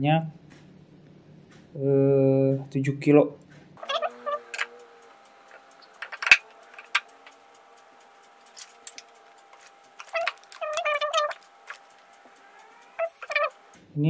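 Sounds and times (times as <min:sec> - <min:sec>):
high squeaks: 0:02.8 - 0:13.8.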